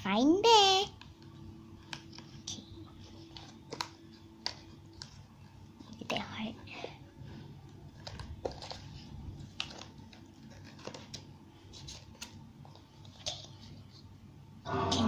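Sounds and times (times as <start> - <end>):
cardboard book rustling: 7.3 - 14.1.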